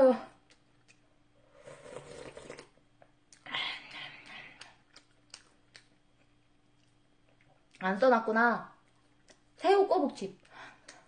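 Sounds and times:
slurping broth: 0:01.4 - 0:02.8.

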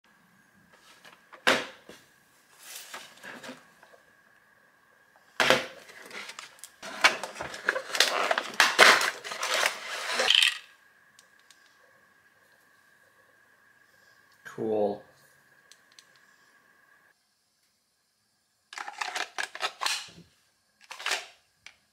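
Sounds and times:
plastic crinkling: 0:05.8 - 0:10.5.

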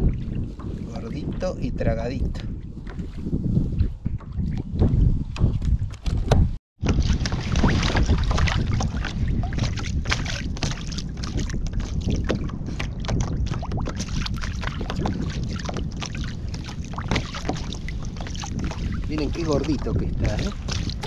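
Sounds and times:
wind buffeting microphone: 0:00.0 - 0:21.0
waves splashing against kayak: 0:06.8 - 0:21.0.

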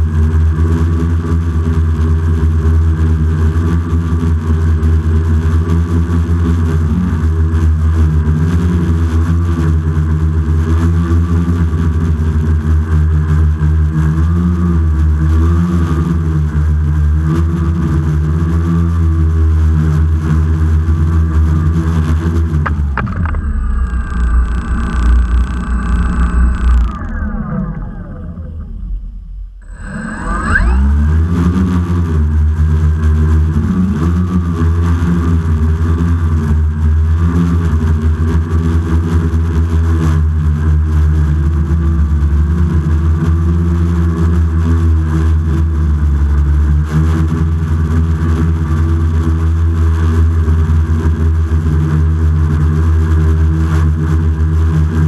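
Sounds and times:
quadcopter motors buzzing: 0:05.5 - 0:40.1.

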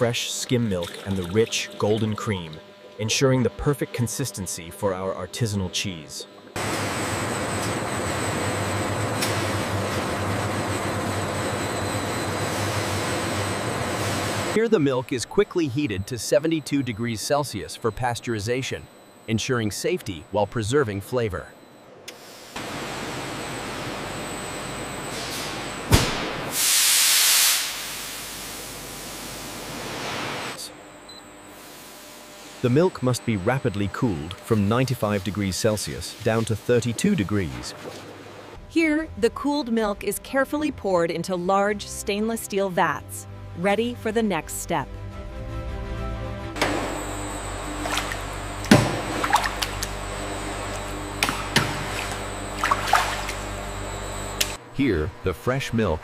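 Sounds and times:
milk splashing in a steel vat: 0:00.2 - 0:02.4, 0:47.8 - 0:50.0, 0:51.2 - 0:53.5
sharp thump: 0:25.9 - 0:26.4
steam hissing: 0:26.4 - 0:30.4
steady low hum: 0:46.5 - 0:56.0.

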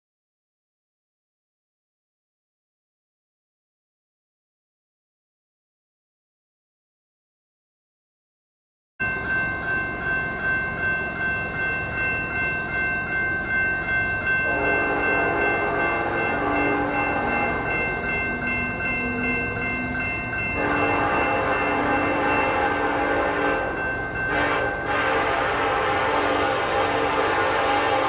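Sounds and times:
crossing bell ringing: 0:09.0 - 0:28.0
locomotive horn blasts: 0:14.4 - 0:28.0.

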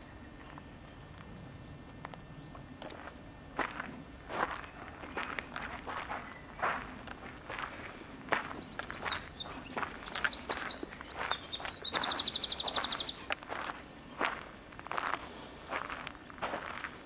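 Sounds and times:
footsteps on gravel: 0:02.8 - 0:17.0
songbird chirping and trilling: 0:04.0 - 0:13.5.

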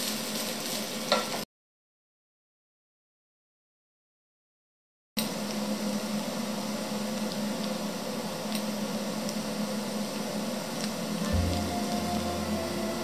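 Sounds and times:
potatoes sizzling in oil: 0:00.0 - 0:01.4, 0:05.2 - 0:13.0
low tone: 0:11.3 - 0:13.0.

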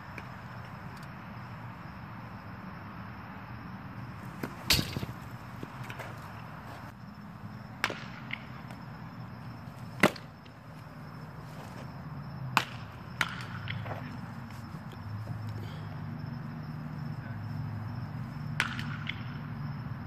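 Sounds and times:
baseball smacking into mitt: 0:04.3 - 0:06.2, 0:07.8 - 0:08.8, 0:09.8 - 0:10.5, 0:12.5 - 0:14.0, 0:18.5 - 0:19.3.

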